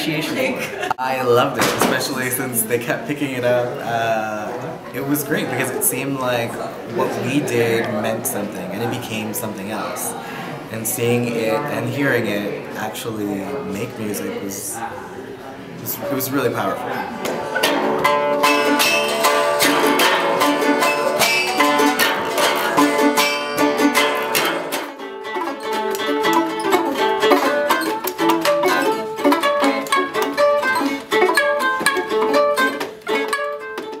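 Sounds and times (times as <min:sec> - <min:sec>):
plucked string ensemble playing: 0:16.0 - 0:34.0.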